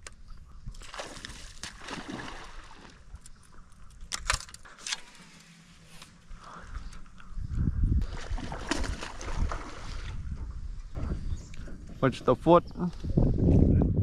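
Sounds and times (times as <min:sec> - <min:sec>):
water sloshing around boat: 0:00.6 - 0:04.1, 0:08.0 - 0:12.6.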